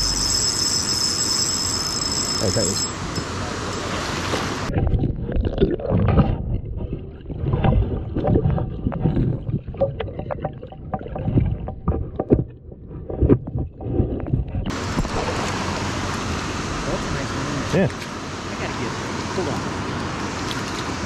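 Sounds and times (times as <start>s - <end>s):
stream water heard underwater: 3.1s - 21.0s
underwater clicks and pops: 4.7s - 14.7s.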